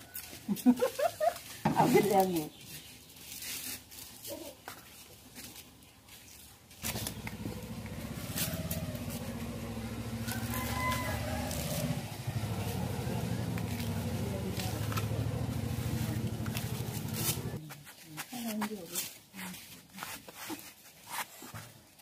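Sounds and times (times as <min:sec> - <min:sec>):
blades cutting bamboo: 0:06.7 - 0:21.6
engine drone: 0:06.8 - 0:17.6.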